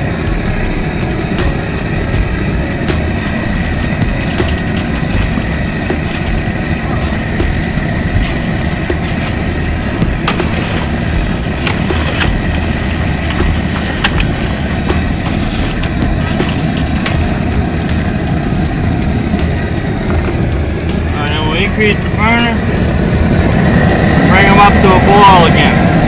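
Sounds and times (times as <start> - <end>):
gas burner rumbling: 0.0 - 26.0.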